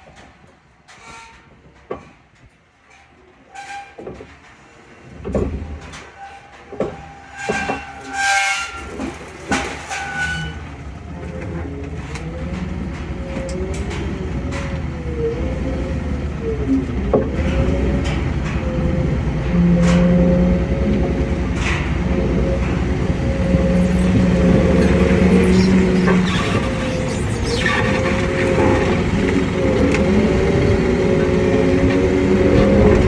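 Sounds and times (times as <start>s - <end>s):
engine and road rumble: 0.0s - 33.0s
trailer clicks and rattles: 0.0s - 33.0s
wavering whine: 18.6s - 33.0s.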